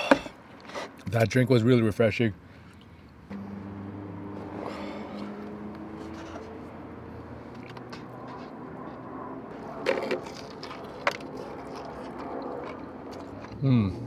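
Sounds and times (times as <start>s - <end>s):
chewing: 9.7s - 14.0s
biting crispy chicken crunch: 10.0s - 14.0s.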